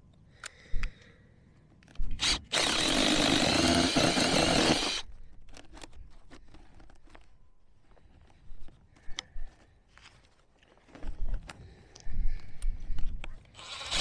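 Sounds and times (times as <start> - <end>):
cordless drill boring: 2.1 - 5.8, 13.6 - 14.0.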